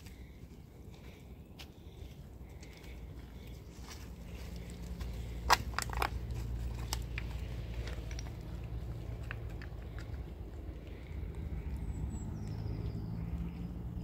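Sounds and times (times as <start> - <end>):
low rumble: 2.5 - 14.0
footsteps crunching on gravel: 2.6 - 9.7
stones knocking underfoot: 2.8 - 10.6.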